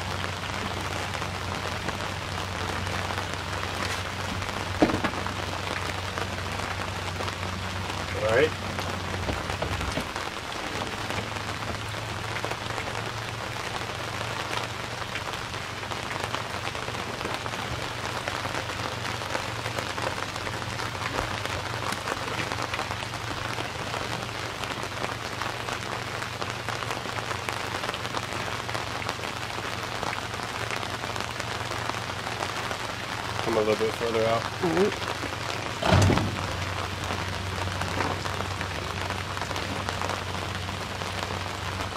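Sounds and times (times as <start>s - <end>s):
rain falling on river: 0.0s - 41.9s.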